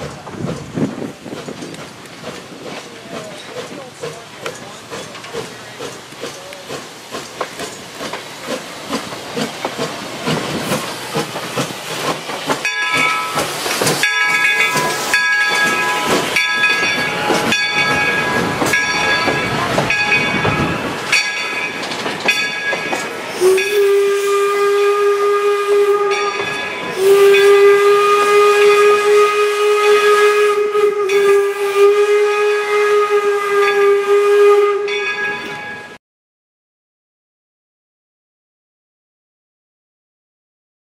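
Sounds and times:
steam locomotive hissing and puffing: 0:00.0 - 0:35.9
steam whistle blowing: 0:23.3 - 0:35.2.

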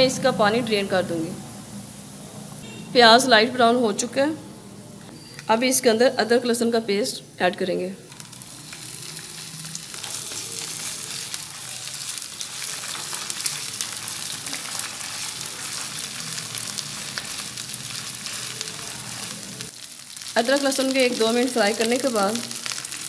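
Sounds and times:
onions sizzling in a frying pan: 0:08.0 - 0:23.0
spatula stirring in a pan: 0:08.1 - 0:21.0.

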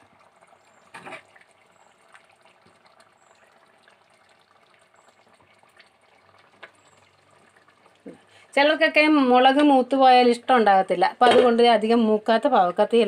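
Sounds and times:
thick liquid pouring and dripping: 0:00.0 - 0:08.6.

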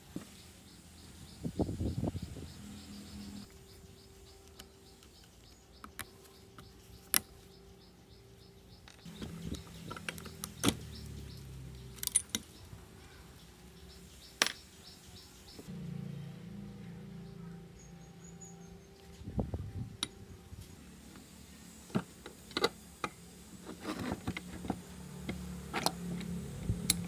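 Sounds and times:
faint chirping: 0:00.0 - 0:24.0
metallic clicks of hand tools: 0:11.7 - 0:12.6.

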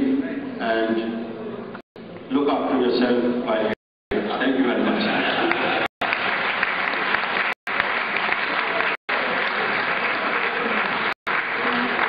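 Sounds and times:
audience applauding: 0:05.1 - 0:12.0.

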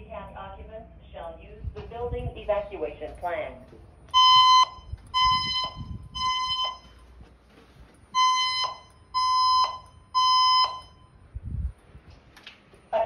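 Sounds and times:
fire alarm beeps: 0:04.0 - 0:07.3, 0:08.0 - 0:11.3.

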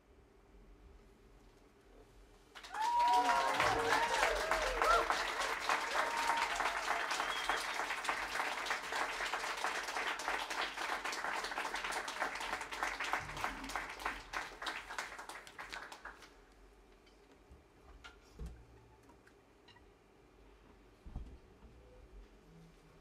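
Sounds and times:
audience applauding: 0:02.5 - 0:16.4.

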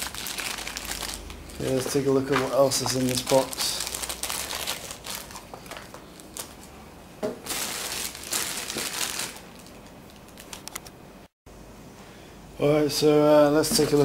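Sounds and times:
plastic bags crinkling: 0:00.0 - 0:06.7, 0:07.3 - 0:10.8.

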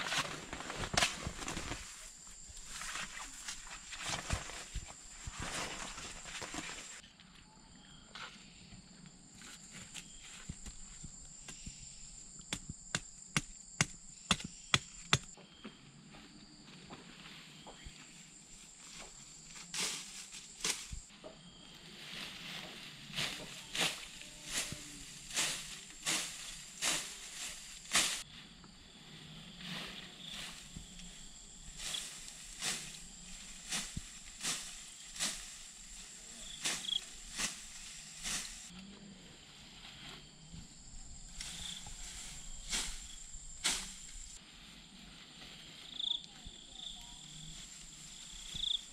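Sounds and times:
grass stems swishing and rustling: 0:00.0 - 0:07.0, 0:17.1 - 0:21.1, 0:21.8 - 0:28.5, 0:29.5 - 0:38.8, 0:41.2 - 0:46.3
high insect drone: 0:09.4 - 0:48.9
machete chopping bamboo: 0:12.4 - 0:15.4.

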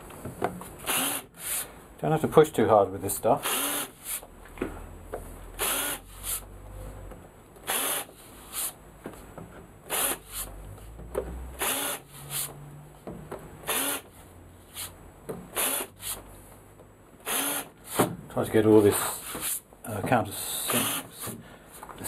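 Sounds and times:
cordless drill drilling wood: 0:00.8 - 0:01.6, 0:03.4 - 0:04.2, 0:05.6 - 0:06.4, 0:07.6 - 0:08.1, 0:09.9 - 0:10.4, 0:11.6 - 0:12.0, 0:13.6 - 0:14.1, 0:15.6 - 0:16.1, 0:17.2 - 0:17.7, 0:20.7 - 0:21.1.

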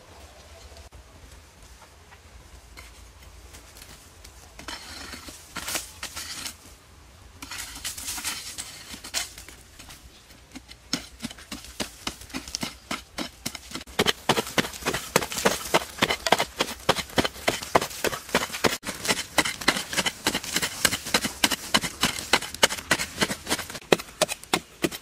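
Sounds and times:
digging tool scraping dry soil: 0:02.7 - 0:06.8, 0:07.4 - 0:25.0
digging tool striking hard ground: 0:10.5 - 0:25.0.

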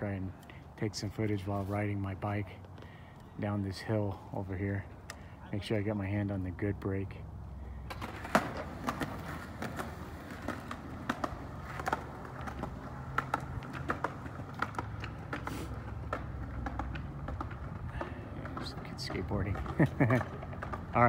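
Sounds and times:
bicycle rolling downhill: 0:07.7 - 0:21.0.

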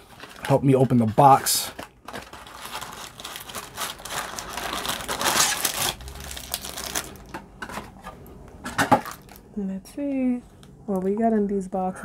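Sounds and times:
cardboard box being torn open: 0:04.6 - 0:07.1.

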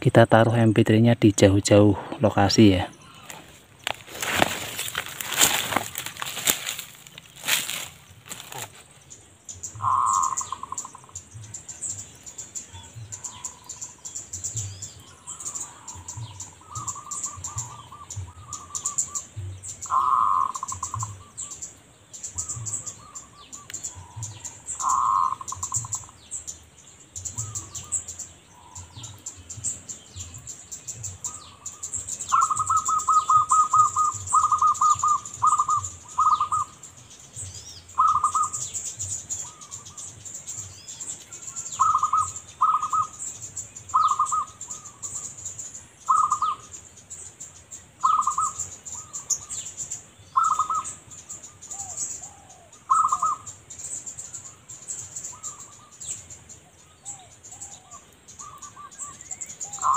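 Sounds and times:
small birds chirping: 0:00.0 - 0:59.9
dove cooing: 0:09.8 - 0:11.2, 0:15.2 - 0:19.2, 0:19.8 - 0:21.5, 0:22.4 - 0:26.1, 0:31.2 - 0:36.8, 0:38.0 - 0:38.7, 0:41.4 - 0:43.2, 0:43.9 - 0:45.2, 0:46.1 - 0:46.6, 0:48.0 - 0:49.6, 0:50.4 - 0:51.0, 0:51.7 - 0:53.5, 0:57.0 - 0:59.9.

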